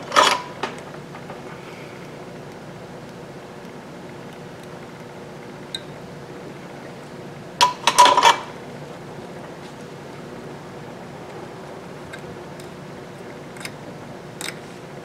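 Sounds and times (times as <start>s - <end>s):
fan hum: 0.0s - 15.0s
metal tools clattering on workbench: 7.8s - 8.4s.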